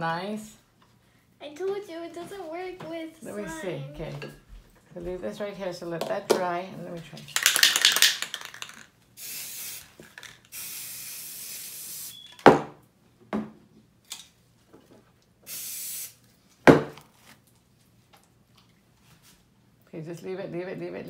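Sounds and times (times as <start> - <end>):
spray paint can hissing: 7.5 - 12.2, 15.5 - 16.2.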